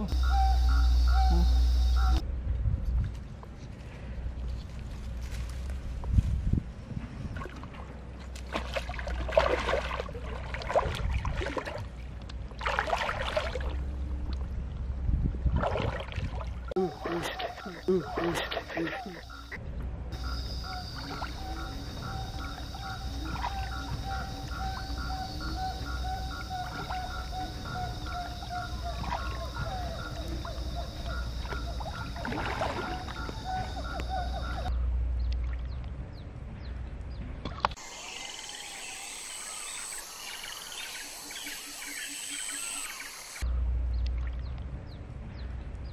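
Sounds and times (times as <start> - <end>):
birds calling: 0.0 - 2.2, 16.8 - 19.6, 20.2 - 34.8, 37.7 - 43.4
steady low hum: 0.0 - 12.7, 16.4 - 45.9
river water sloshing and gurgling: 4.3 - 19.5, 20.1 - 34.7, 42.8 - 45.3.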